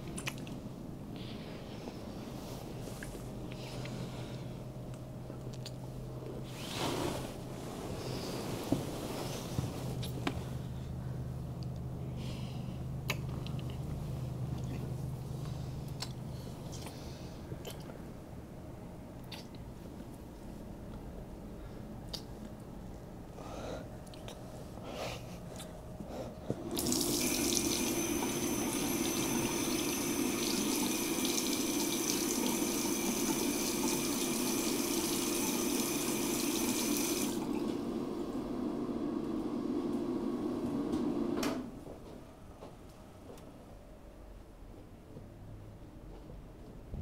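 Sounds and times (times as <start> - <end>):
tap water running into sink: 26.8 - 37.4.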